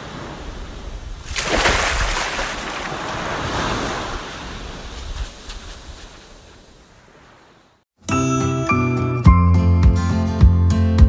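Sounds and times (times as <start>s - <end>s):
ocean wave breaking: 0.0s - 7.8s.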